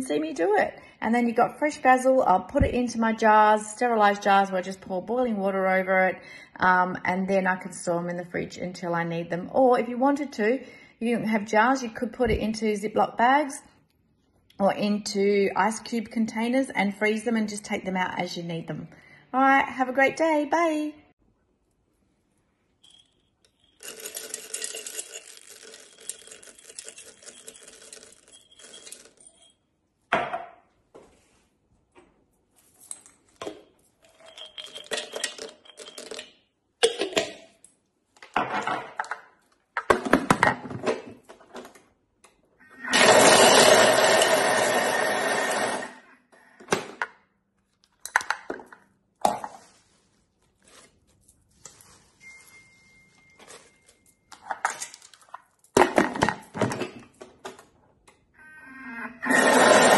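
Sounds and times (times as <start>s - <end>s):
nuts rattling into metal bowl: 23.5s - 29.4s
food processor blade whirring: 42.9s - 46.1s, 59.3s - 59.9s.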